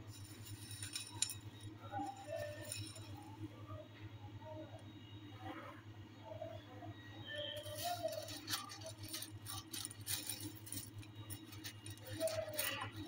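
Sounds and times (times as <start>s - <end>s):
dry pasta rattling in a bowl: 0.0s - 3.4s, 7.5s - 13.0s
low steady hum: 0.0s - 13.0s.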